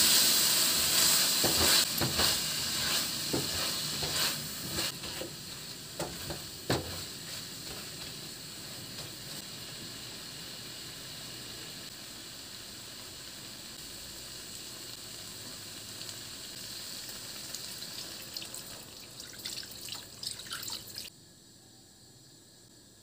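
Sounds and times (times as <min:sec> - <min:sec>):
food sizzling in a wok: 0:00.0 - 0:21.1
water splashing into pan: 0:17.5 - 0:21.1.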